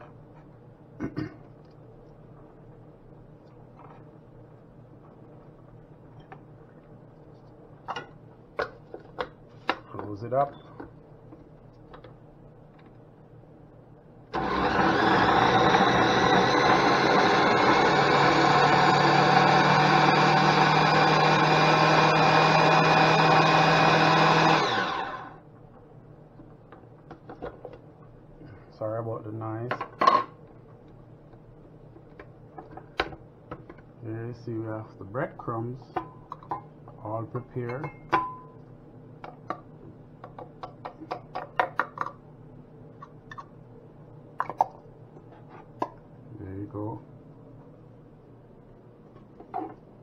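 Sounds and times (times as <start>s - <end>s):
blender motor running: 14.3s - 25.4s.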